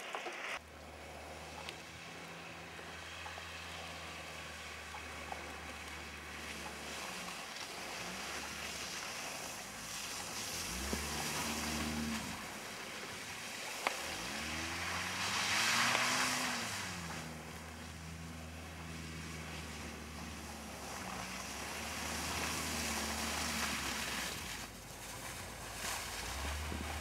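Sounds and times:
tyres spraying snow: 0.0s - 27.0s
car engine revving: 0.6s - 27.0s.

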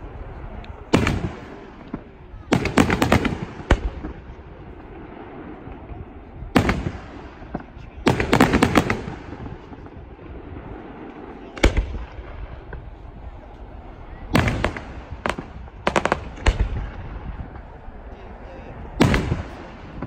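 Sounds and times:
fireworks bangs: 0.0s - 20.0s
fireworks crackling: 0.0s - 20.0s.

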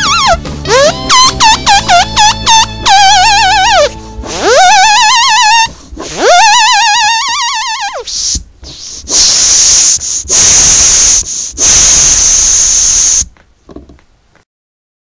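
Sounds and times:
tire pump hissing air: 4.2s - 4.8s, 8.0s - 13.3s.

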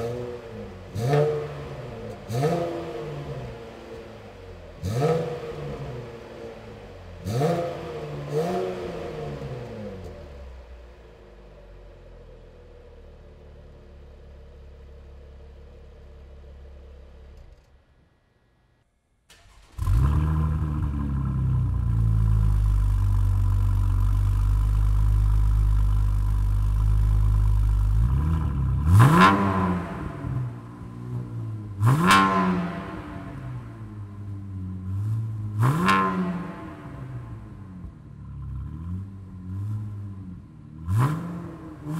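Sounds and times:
engine revving: 0.0s - 10.5s, 19.4s - 41.9s
car engine idling: 0.0s - 18.7s, 19.3s - 35.6s
loud engine starting up: 19.3s - 21.8s.

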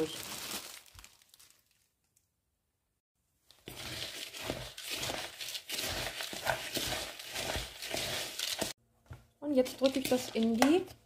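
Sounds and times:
crumbs mixed by hand rustling: 3.6s - 8.8s.

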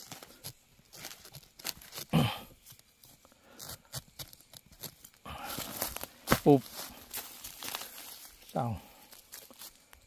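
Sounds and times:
digging earth and leaves by hand: 0.0s - 10.0s
short low grunt: 2.1s - 2.5s.

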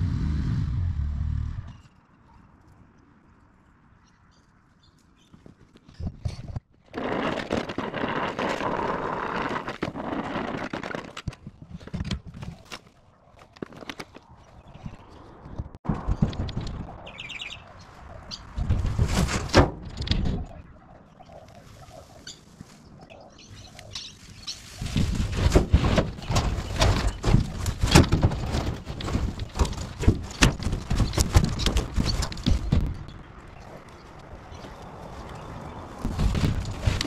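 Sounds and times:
tree branches rustling and crackling: 4.5s - 37.0s
bird chirping: 17.0s - 18.6s, 20.4s - 24.8s.

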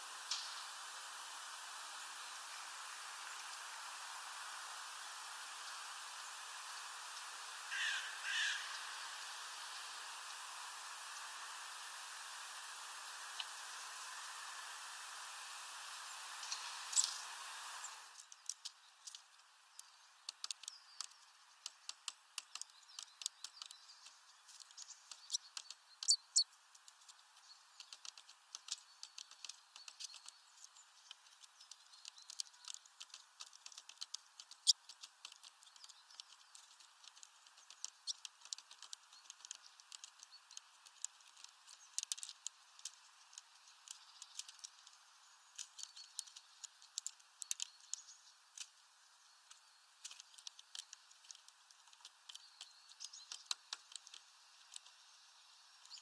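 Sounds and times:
faint steady hiss: 0.0s - 56.0s
bird pecking at feeder: 31.0s - 45.0s.

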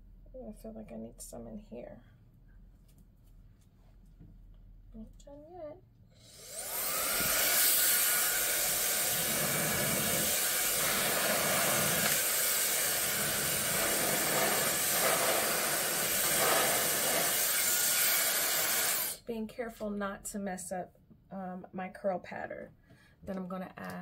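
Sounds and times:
hair dryer air rushing: 6.2s - 19.2s
hair dryer motor whine: 6.2s - 19.2s.

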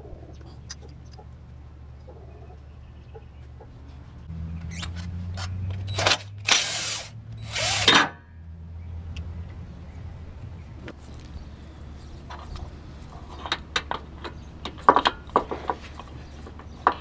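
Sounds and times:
impact wrench hammering bursts: 5.9s - 8.2s
impact wrench motor running: 6.4s - 8.1s.

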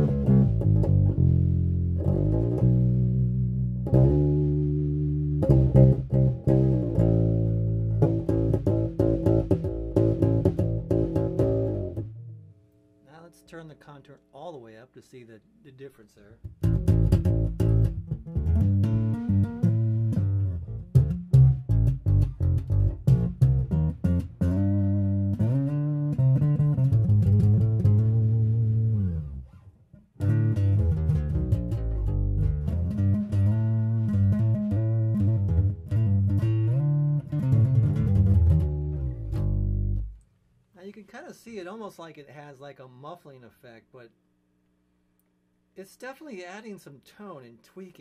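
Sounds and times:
electric bass guitar notes: 0.0s - 14.2s, 16.4s - 40.3s.

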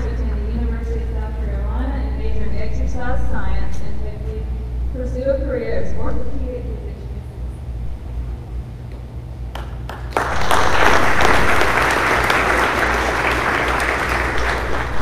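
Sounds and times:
audience applauding: 9.5s - 15.0s.

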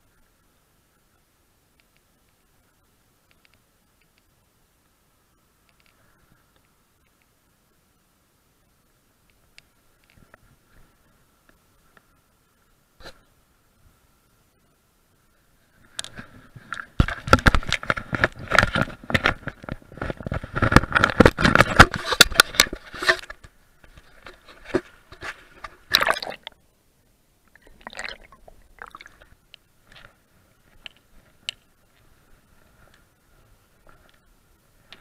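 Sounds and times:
rustles and knocks: 15.9s - 25.9s
fabric rubbing on microphone: 17.8s - 23.4s.

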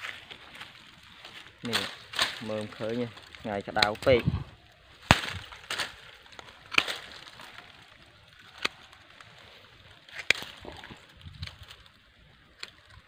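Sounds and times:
dry leaves rustling: 0.0s - 13.0s
pruning shears snipping: 1.6s - 4.2s, 4.9s - 7.7s, 8.4s - 9.2s, 10.1s - 11.6s.

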